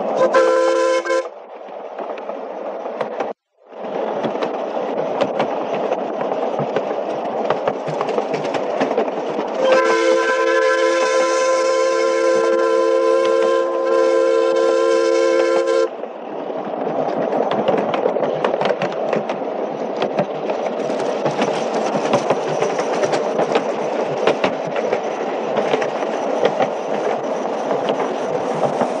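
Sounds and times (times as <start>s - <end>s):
steam locomotive chime whistle: 0.1s - 1.3s, 9.6s - 15.9s
train wheels rattling and clicking: 1.6s - 12.4s, 15.4s - 29.0s.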